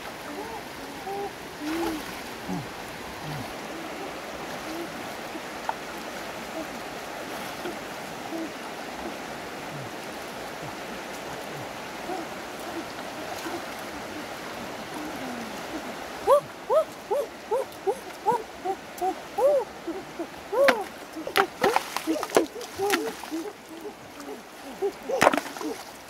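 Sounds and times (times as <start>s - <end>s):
river running over stones: 0.0s - 26.0s
hands sloshing in water: 20.6s - 26.0s.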